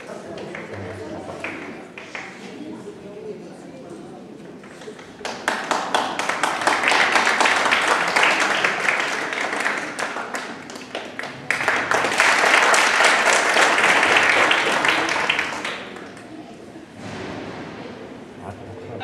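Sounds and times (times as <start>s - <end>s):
audience applauding: 5.0s - 16.3s.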